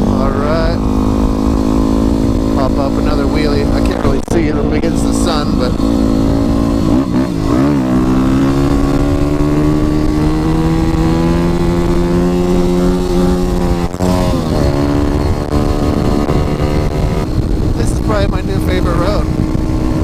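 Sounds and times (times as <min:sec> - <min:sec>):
motorcycle engine accelerating: 0:00.0 - 0:20.0.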